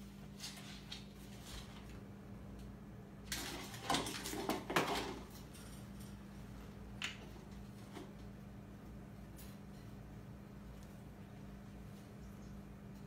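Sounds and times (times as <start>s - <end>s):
raccoons scuffling and clattering: 3.3s - 8.4s.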